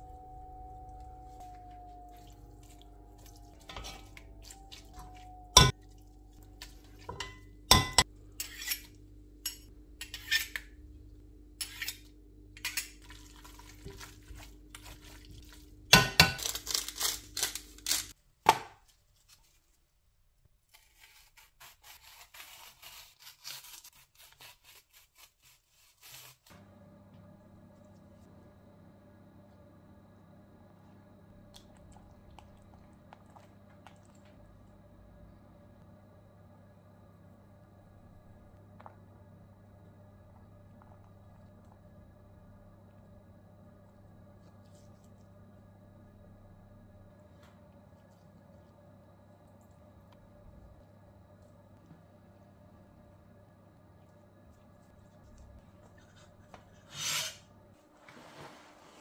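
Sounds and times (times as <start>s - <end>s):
steady hum: 0.0s - 18.1s, 26.5s - 57.8s
utensils scraping a pot: 7.1s - 10.6s, 56.0s - 57.5s.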